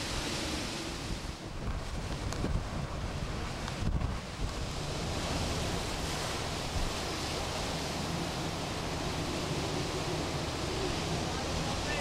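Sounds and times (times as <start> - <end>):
gusting wind: 0.0 - 12.0
wind buffeting microphone: 0.0 - 12.0
driving rain hiss: 4.5 - 12.0.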